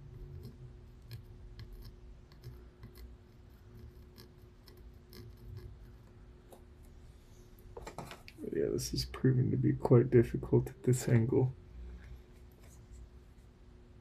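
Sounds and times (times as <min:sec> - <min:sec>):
steady low hum: 0:00.0 - 0:14.0
soldering iron ticks and scratches: 0:00.1 - 0:06.9.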